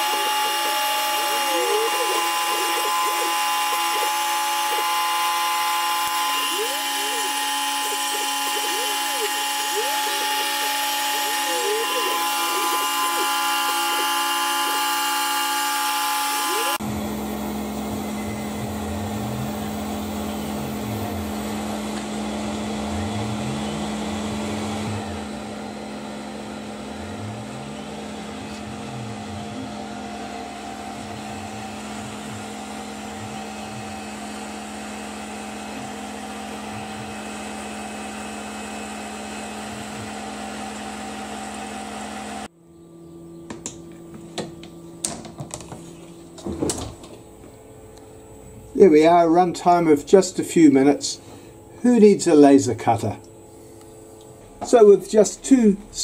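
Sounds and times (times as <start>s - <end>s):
milling machine cutting metal: 0.0s - 42.4s.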